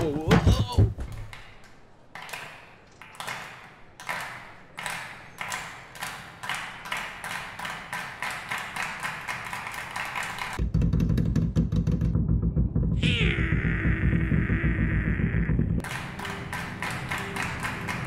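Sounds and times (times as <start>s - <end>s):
rhythmic clapping with echo: 2.2s - 10.6s, 15.8s - 18.0s
loud low rumble: 12.2s - 15.8s.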